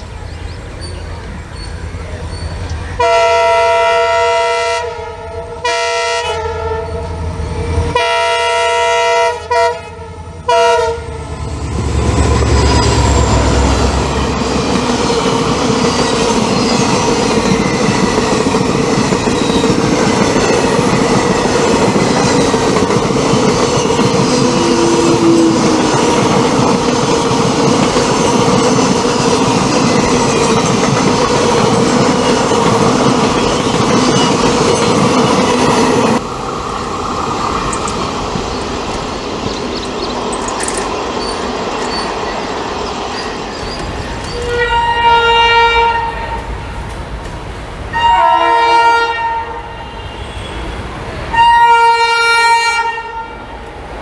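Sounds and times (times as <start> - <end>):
locomotive horn honking: 3.0 - 7.1, 7.9 - 11.3, 44.3 - 46.5, 47.9 - 53.5
train wheels clattering on track: 11.4 - 44.8.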